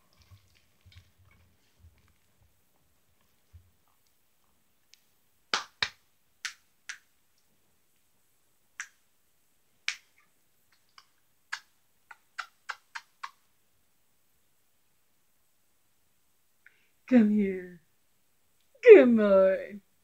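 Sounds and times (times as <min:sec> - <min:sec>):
fingers snapping: 0:04.9 - 0:07.1, 0:08.8 - 0:09.0, 0:09.9 - 0:13.4.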